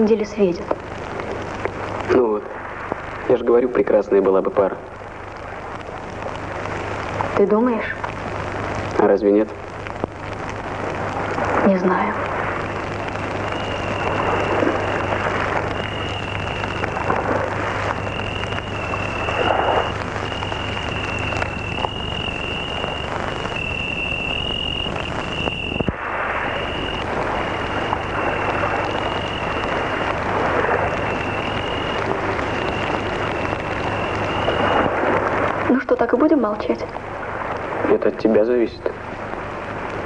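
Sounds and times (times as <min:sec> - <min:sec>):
campfire crackling: 0:00.0 - 0:40.0
film soundtrack hiss and hum: 0:00.0 - 0:40.0
crickets trilling: 0:11.3 - 0:36.2.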